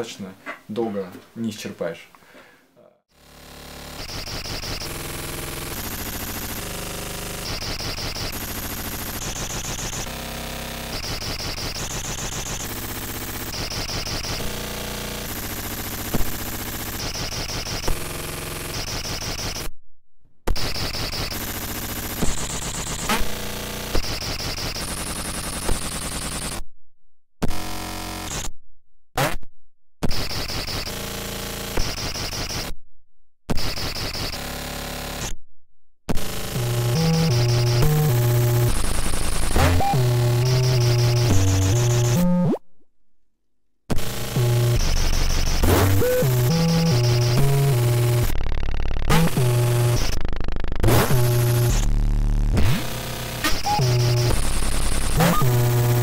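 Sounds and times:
harsh buzzing synthesizer noise: 3.1 - 19.7, 20.5 - 26.6, 30.1 - 32.7, 33.5 - 35.3, 36.2 - 42.6, 43.9 - 56.0
rapid stuttering pulses: 3.2 - 19.6, 36.2 - 42.4, 43.9 - 56.0
glitchy electronic noise: 3.3 - 19.7, 20.5 - 26.0, 30.1 - 32.7, 33.5 - 35.3, 36.2 - 42.6, 43.9 - 56.0.

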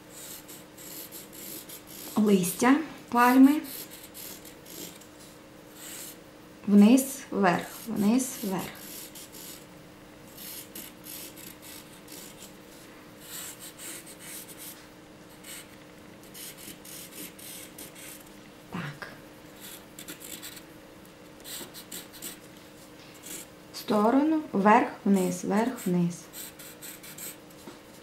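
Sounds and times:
faint steady hum: 0.0 - 28.0
pencil scratching on paper: 0.1 - 2.2, 3.2 - 5.0, 5.8 - 6.2, 7.6 - 9.7, 10.4 - 12.5, 13.2 - 14.8, 15.4 - 15.7, 16.3 - 18.2, 19.6 - 20.6, 21.4 - 22.4, 25.7 - 27.4.

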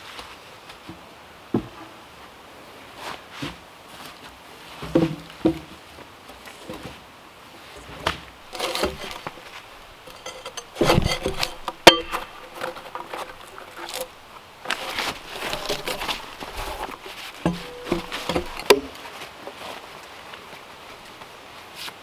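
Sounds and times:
bark being torn off logs: 8.4 - 19.0.

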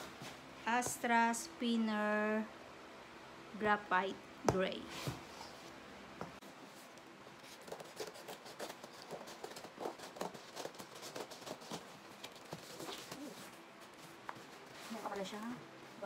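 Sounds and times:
scissors cutting packing tape: 7.6 - 13.2.

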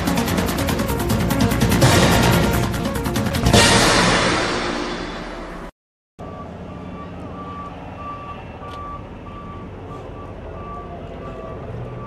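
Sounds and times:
reversing alarm beeping: 6.2 - 12.0.

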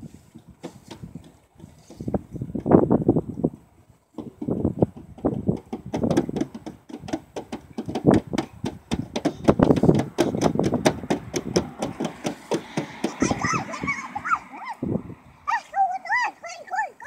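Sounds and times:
hands tapping on car: 4.2 - 13.4.

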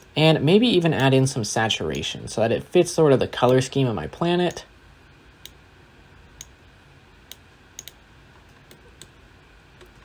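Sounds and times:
low room hum: 0.0 - 10.0
computer mouse clicks: 6.4 - 6.6, 7.2 - 9.2
scroll wheel ticks: 7.3 - 8.0.

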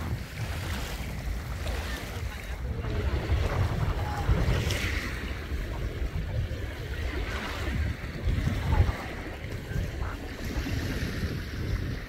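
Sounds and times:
sea waves washing ashore: 0.0 - 12.0
wind buffeting microphone: 0.0 - 12.0.

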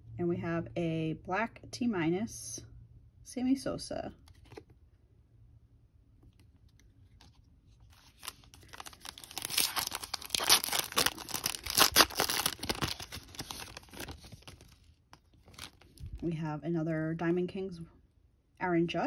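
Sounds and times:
foil wrapper tearing and crinkling: 7.9 - 16.0.

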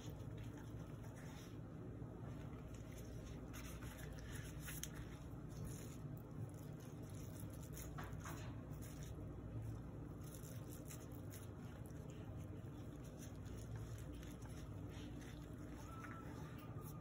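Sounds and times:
gloved hands rubbing and squishing: 0.0 - 17.0
steady low hum: 0.0 - 17.0.

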